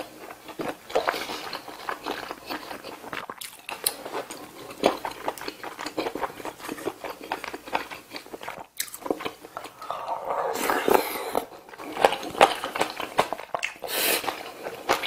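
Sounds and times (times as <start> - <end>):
wet chewing and mouth clicks: 0.2 - 15.0.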